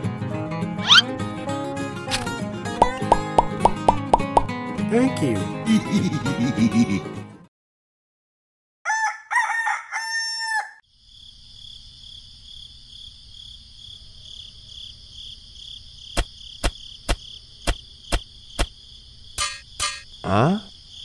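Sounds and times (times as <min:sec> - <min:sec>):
rooster crowing: 0:08.8 - 0:10.8
insects chirring: 0:10.8 - 0:21.0.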